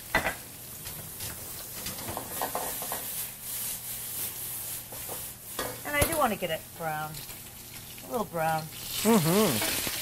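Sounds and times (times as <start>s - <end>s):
pan rubbing on burner grate: 1.1s - 5.8s
mushrooms sizzling in a pan: 7.1s - 10.0s.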